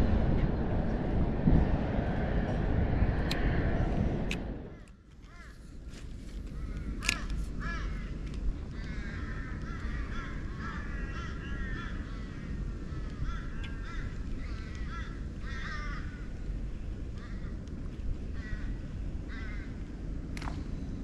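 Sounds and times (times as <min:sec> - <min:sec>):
low wind rumble on microphone: 0:00.0 - 0:21.0
birds calling: 0:06.5 - 0:16.3.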